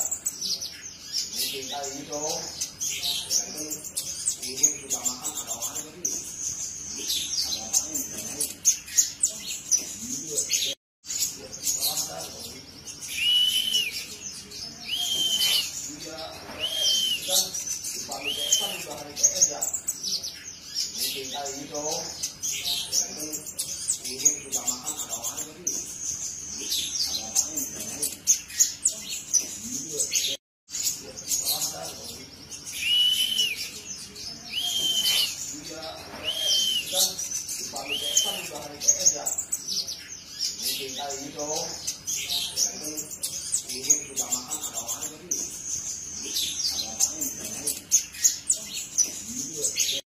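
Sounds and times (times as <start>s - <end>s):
bird chips and twittering: 0.0s - 50.0s
high thin bird chirps: 12.8s - 18.9s, 32.6s - 40.7s
bird whistling: 13.1s - 14.2s, 14.8s - 15.8s, 16.6s - 17.4s, 18.2s - 18.9s, 32.7s - 33.8s, 34.5s - 35.4s, 36.2s - 37.0s, 37.8s - 38.5s.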